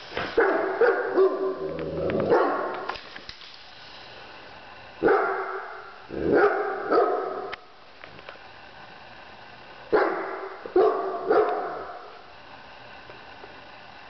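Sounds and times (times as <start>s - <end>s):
dog barking: 0.4s - 2.9s, 5.0s - 7.6s, 9.9s - 12.1s.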